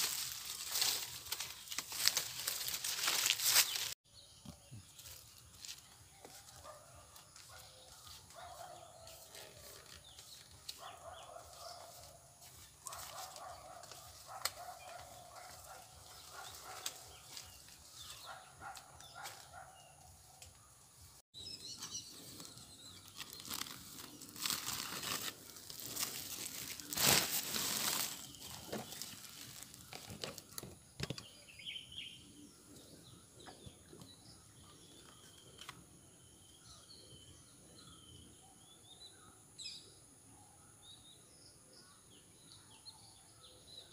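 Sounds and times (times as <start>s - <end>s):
rustling and scraping of cloth and rope: 0.0s - 4.0s, 7.4s - 19.7s, 21.9s - 30.6s
faint birds chirping: 0.0s - 43.9s.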